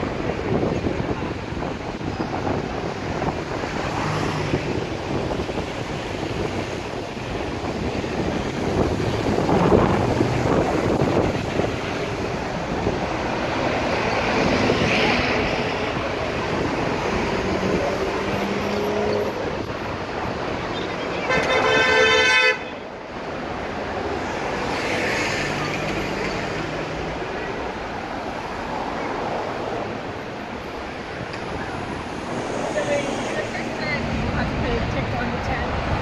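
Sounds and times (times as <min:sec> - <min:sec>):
vehicle engines running: 0:00.0 - 0:21.6
tyres rushing on tarmac: 0:00.0 - 0:36.0.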